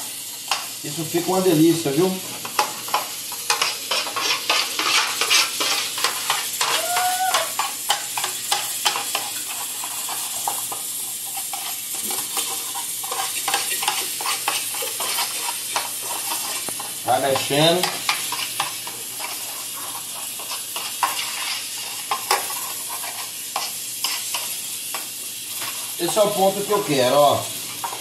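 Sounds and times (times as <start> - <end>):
spoon scraping metal tray: 3.5 - 6.7, 19.2 - 24.4.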